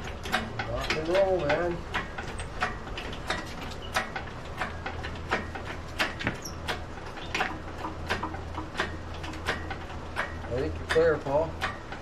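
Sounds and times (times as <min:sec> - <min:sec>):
metallic clicks and knocks: 0:00.0 - 0:12.0.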